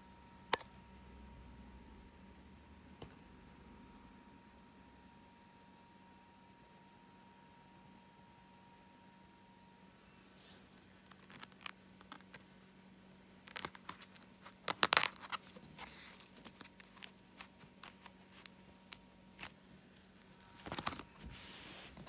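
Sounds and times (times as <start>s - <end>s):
plastic binder pages crinkling: 10.7s - 12.6s, 13.4s - 22.0s.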